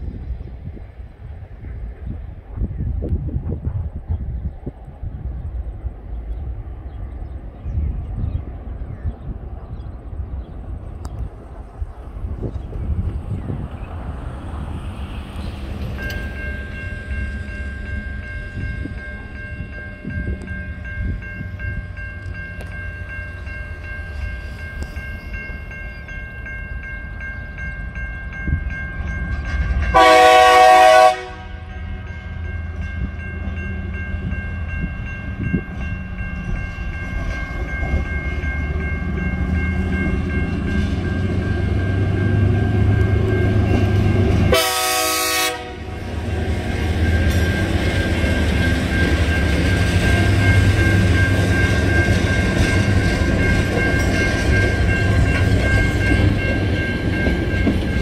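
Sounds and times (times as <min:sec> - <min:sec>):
diesel locomotive engines rumbling: 0:00.0 - 0:58.0
level-crossing warning bells ringing: 0:14.0 - 0:58.0
train horn: 0:29.9 - 0:31.9, 0:44.2 - 0:46.2.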